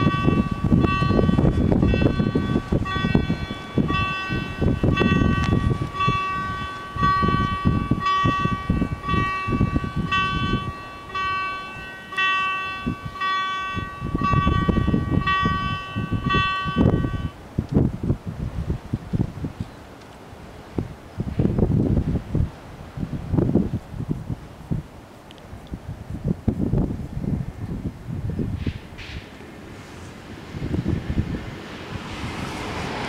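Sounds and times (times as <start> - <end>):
level crossing warning bells: 0.0 - 17.4
wind buffeting microphone: 0.0 - 33.0.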